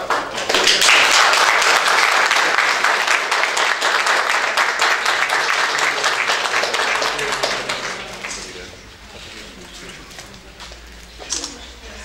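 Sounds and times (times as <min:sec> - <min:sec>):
audience applauding: 0:00.0 - 0:08.8.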